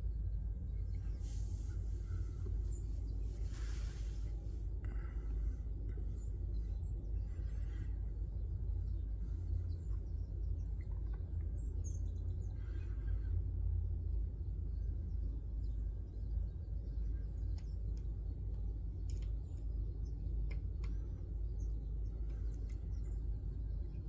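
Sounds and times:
low rumble: 0:00.0 - 0:24.0
sparrows chirping: 0:00.8 - 0:13.3, 0:14.4 - 0:24.0.

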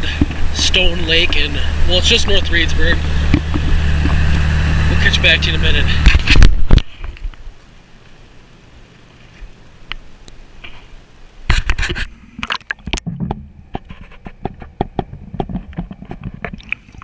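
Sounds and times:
faint steady hum: 0:00.0 - 0:17.0
camera scratchy knocks and clicks: 0:03.3 - 0:04.4, 0:06.0 - 0:07.3, 0:11.5 - 0:12.1, 0:12.9 - 0:16.8.

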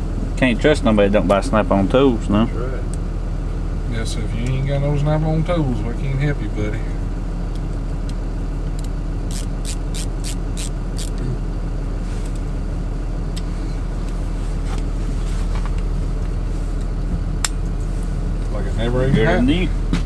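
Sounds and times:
steady low hum: 0:00.0 - 0:20.0
ratcheting screwdriver clicks: 0:09.3 - 0:11.2.

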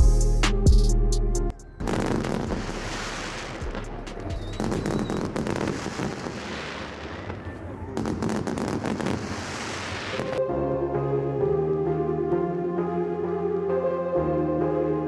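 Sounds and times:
fireworks crackling and popping: 0:01.8 - 0:10.4.

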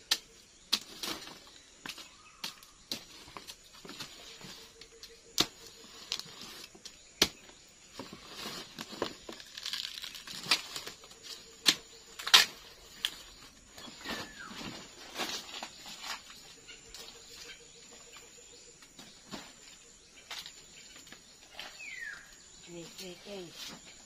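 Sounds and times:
roots tearing and rustling: 0:08.1 - 0:16.4
machete chopping plant: 0:11.6 - 0:12.6.

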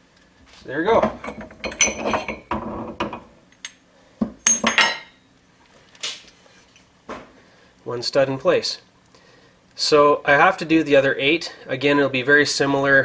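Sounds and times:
metal hub clinking against metal: 0:01.0 - 0:02.5, 0:04.4 - 0:05.2.

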